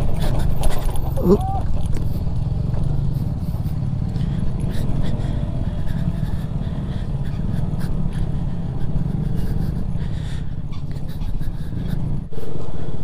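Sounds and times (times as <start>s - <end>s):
knocks and rattles from bumps: 0.0s - 3.2s
motorcycle engine rumble: 0.0s - 13.0s.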